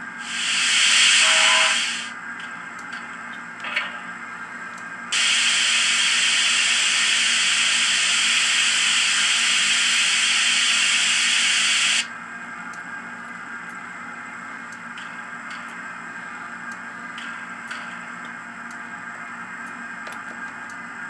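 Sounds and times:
steam hiss from small speaker: 0.2s - 2.2s, 5.2s - 12.1s.

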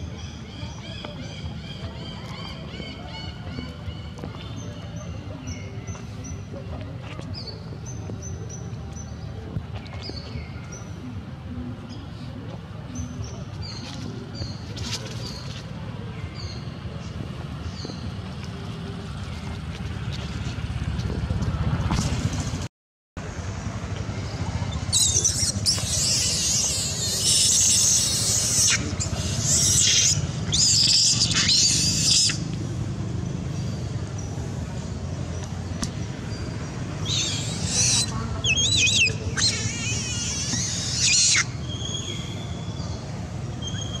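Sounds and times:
infant monkey screaming: 24.9s - 32.5s, 37.0s - 42.3s.

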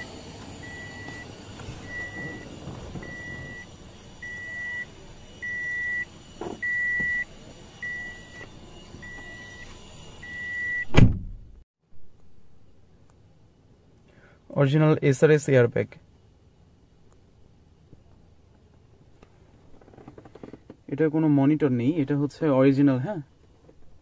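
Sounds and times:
car warning buzzer beeping: 0.0s - 11.0s
loud thump: 10.9s - 11.6s.

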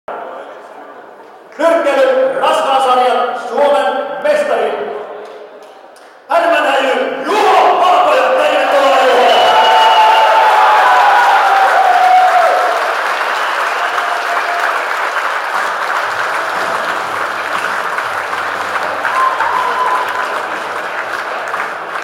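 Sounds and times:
audience applauding: 8.8s - 22.0s.

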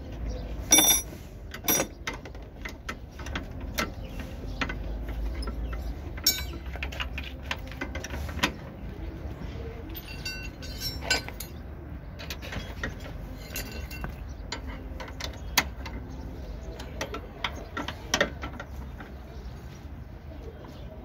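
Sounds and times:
hand tools clinking on metal: 0.7s - 4.0s, 4.6s - 8.2s, 9.9s - 16.2s.

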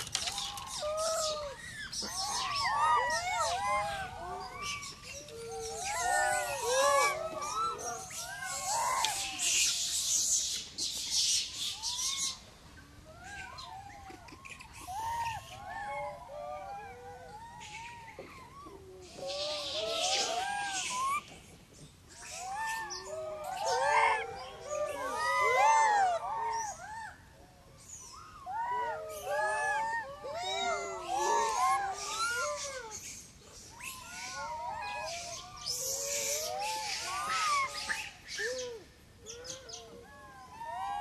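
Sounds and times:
macaques cooing: 0.0s - 9.5s, 28.5s - 33.0s.

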